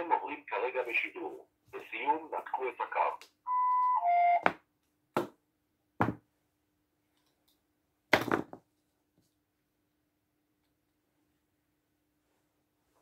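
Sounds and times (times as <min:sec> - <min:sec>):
knocks on a table: 0:06.0 - 0:06.2.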